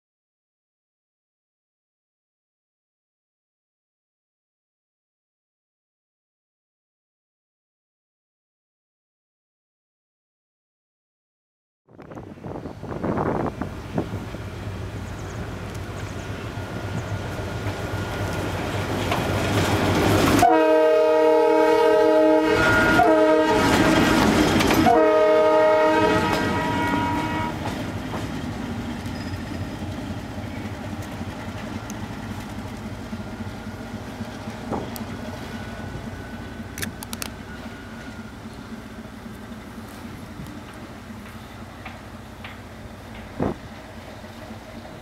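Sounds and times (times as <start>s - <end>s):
diesel locomotive engine: 11.9s - 45.0s
train running gear rumbling: 11.9s - 45.0s
locomotive horn blasts: 20.3s - 27.7s.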